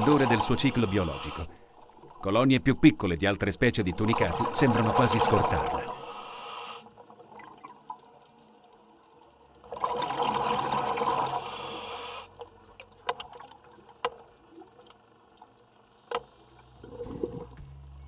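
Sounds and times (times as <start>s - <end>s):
underwater rush of bubbles: 3.9s - 6.0s, 9.7s - 11.5s.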